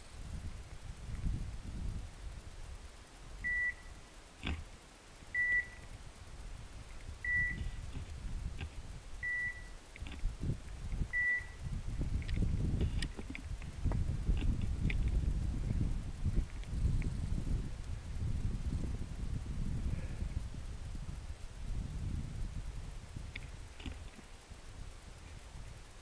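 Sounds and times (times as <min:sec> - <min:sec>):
rustle of brush: 0:00.0 - 0:26.0
short electronic beeps: 0:03.5 - 0:03.9, 0:05.4 - 0:05.8, 0:07.3 - 0:07.7, 0:09.2 - 0:09.8, 0:11.2 - 0:11.6.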